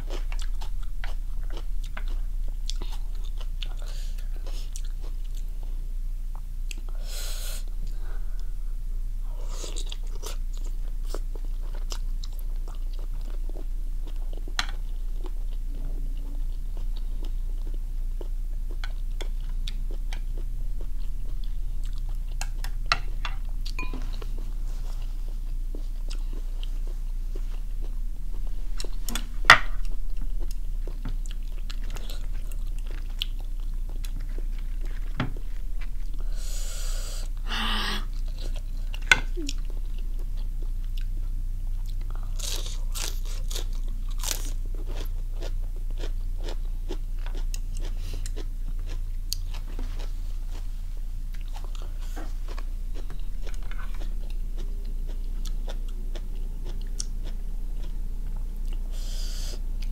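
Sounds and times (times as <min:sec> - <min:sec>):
chewing and biting food: 0:00.0 - 0:05.6, 0:25.4 - 0:36.2, 0:38.1 - 0:50.6, 0:51.3 - 0:58.8
steady low hum: 0:00.0 - 0:59.9.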